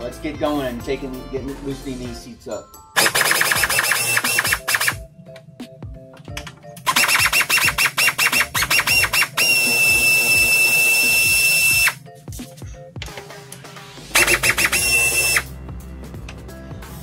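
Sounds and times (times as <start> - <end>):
air impact wrench hammering: 3.0 - 5.0, 6.8 - 12.0, 14.2 - 15.5
impact wrench spinning whine: 3.0 - 5.0, 6.9 - 12.0, 14.2 - 15.5.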